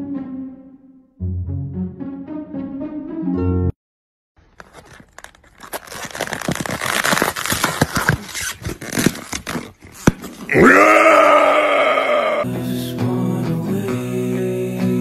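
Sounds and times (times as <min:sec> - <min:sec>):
music: 0:00.0 - 0:03.8, 0:12.4 - 0:15.0
styrofoam container crinkling: 0:04.4 - 0:10.5.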